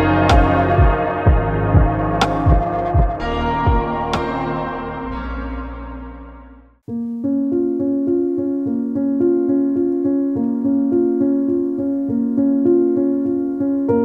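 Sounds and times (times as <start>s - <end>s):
background music: 0.0s - 14.0s
repeated electric piano notes: 6.9s - 14.0s.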